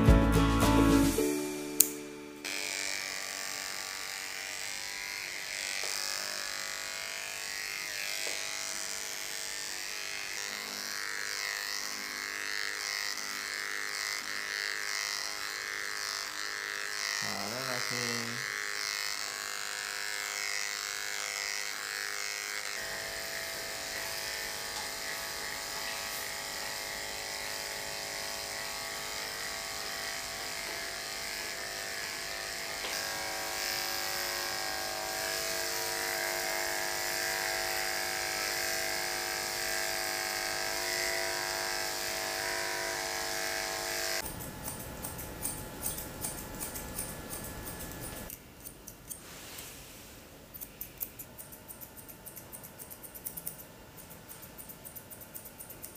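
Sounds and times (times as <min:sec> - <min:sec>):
electric clippers buzzing: 0:01.0 - 0:49.2, 0:50.5 - 0:55.9
scissors snipping: 0:01.8 - 0:02.0, 0:44.2 - 0:49.2, 0:50.5 - 0:55.9.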